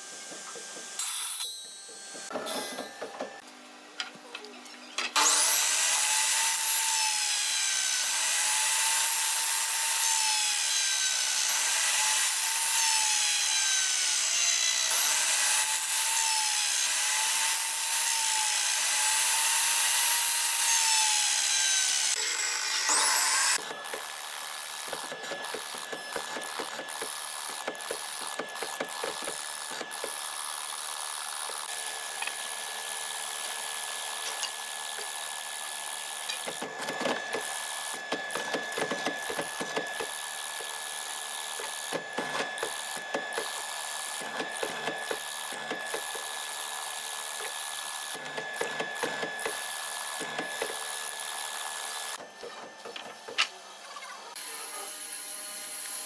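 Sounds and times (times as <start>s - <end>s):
chisel boring into wood: 5.2s - 53.6s
mortiser machine whining: 18.2s - 33.4s.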